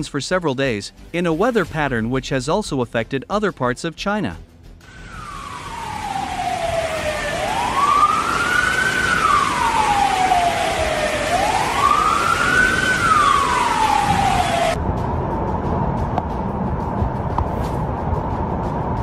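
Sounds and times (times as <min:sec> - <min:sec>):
rain hissing: 0:04.8 - 0:14.8
siren wailing: 0:04.9 - 0:14.8.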